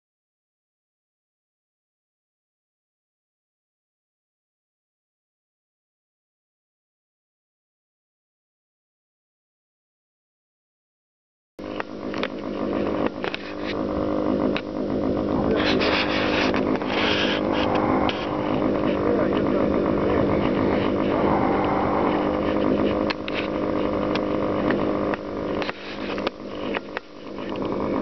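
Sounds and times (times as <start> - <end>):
model plane engine running: 11.6 - 28.0.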